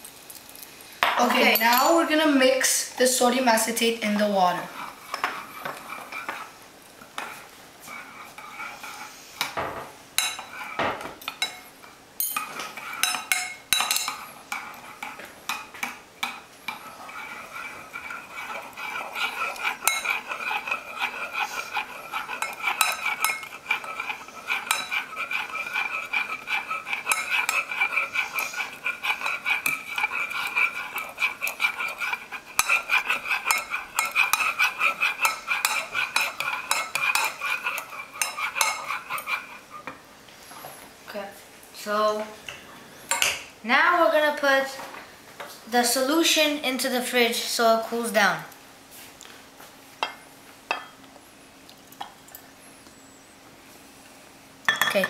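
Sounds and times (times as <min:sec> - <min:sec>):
metal spoon stirring in pot: 0:04.2 - 0:06.5, 0:07.2 - 0:09.1, 0:10.2 - 0:11.6, 0:12.2 - 0:40.0.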